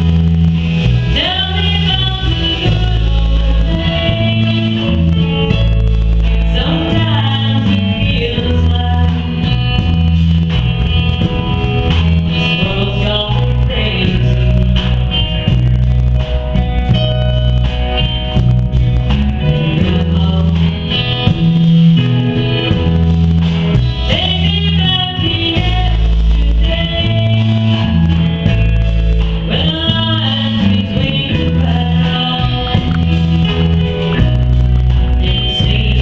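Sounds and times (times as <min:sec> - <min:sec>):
deep bass notes: 0:00.0 - 0:36.0
electric guitar: 0:00.0 - 0:36.0
woman singing into a microphone: 0:01.1 - 0:05.7, 0:06.4 - 0:10.2, 0:12.3 - 0:15.3, 0:19.4 - 0:21.0, 0:24.0 - 0:28.2, 0:29.4 - 0:33.3, 0:35.0 - 0:36.0.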